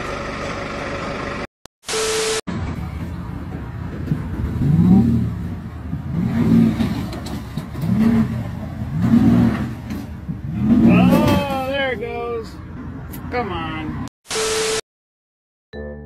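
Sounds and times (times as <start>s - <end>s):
truck engine revving: 2.5s - 11.6s.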